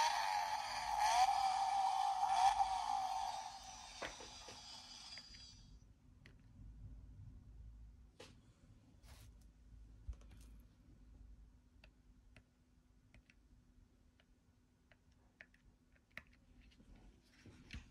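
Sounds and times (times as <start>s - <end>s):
faint small clicks and taps: 11.8s - 13.5s, 14.1s - 17.9s.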